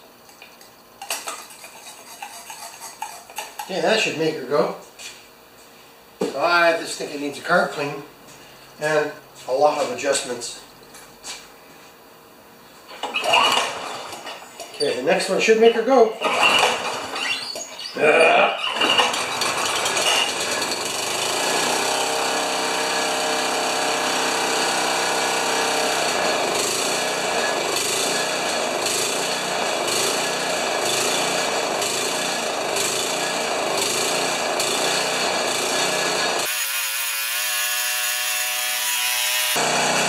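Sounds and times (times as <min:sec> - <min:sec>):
lawn mower engine running: 0:13.0 - 0:14.4, 0:16.2 - 0:17.4, 0:18.7 - 0:36.5, 0:39.0 - 0:40.0.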